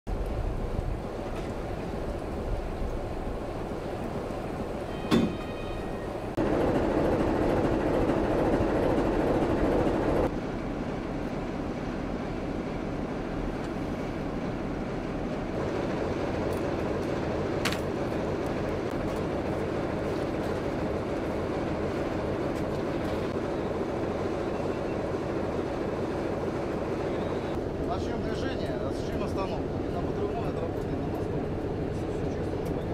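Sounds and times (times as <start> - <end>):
train rumbling: 0.1 - 32.9.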